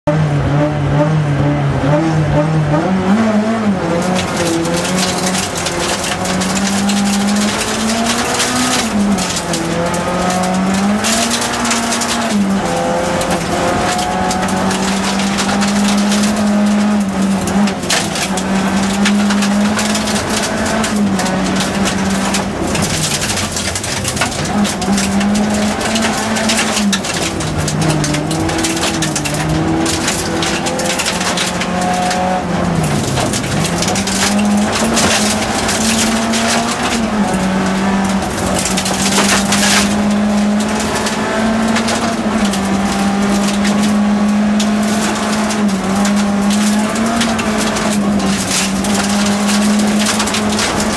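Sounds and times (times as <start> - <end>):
rally car engine revving: 0.0 - 50.9
tyres crunching on gravel: 3.1 - 50.9.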